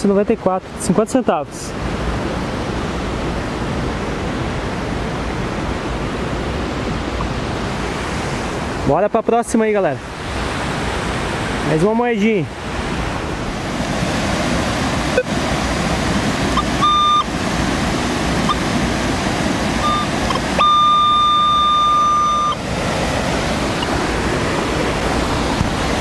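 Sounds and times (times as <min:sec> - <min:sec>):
stream water flowing: 0:10.0 - 0:26.0
metal detector beeping: 0:16.5 - 0:17.3, 0:18.4 - 0:18.7, 0:19.8 - 0:22.7.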